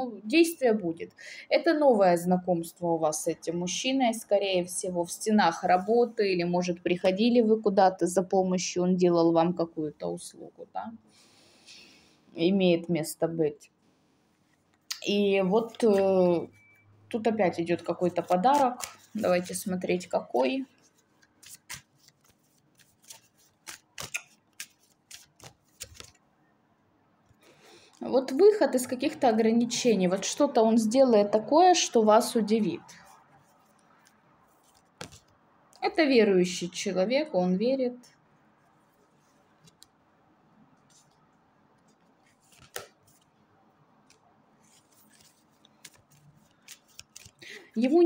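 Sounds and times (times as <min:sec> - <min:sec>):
cards flicking and tapping: 0:18.2 - 0:19.7, 0:21.2 - 0:26.2, 0:34.6 - 0:35.4, 0:41.8 - 0:43.3, 0:44.0 - 0:47.5
card snap: 0:42.6 - 0:43.0.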